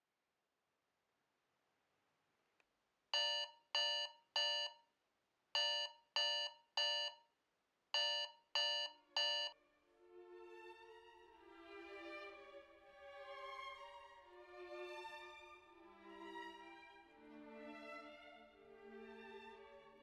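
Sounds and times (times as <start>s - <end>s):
alarm clock beeping: 3.2s - 4.8s, 5.6s - 7.2s, 8.0s - 9.6s
soft violin music: 9.9s - 20.0s.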